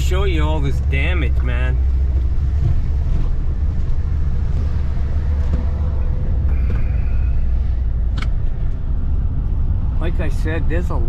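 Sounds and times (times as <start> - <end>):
vehicle road and engine rumble: 0.0 - 11.0.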